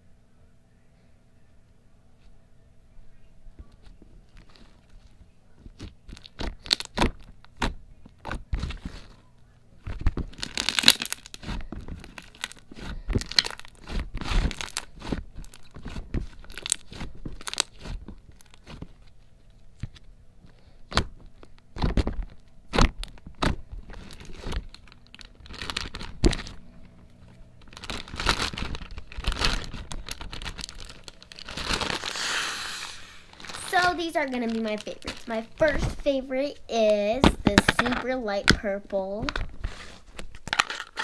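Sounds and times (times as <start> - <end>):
slime squelching and popping: 5.6 - 9.1, 9.8 - 19.0.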